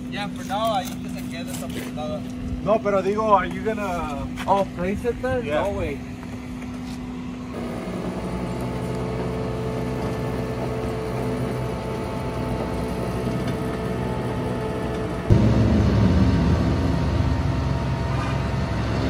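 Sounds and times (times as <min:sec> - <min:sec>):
steady whine: 0:00.0 - 0:19.0
truck engine running: 0:07.5 - 0:19.0
hydraulic winch running: 0:07.6 - 0:15.3.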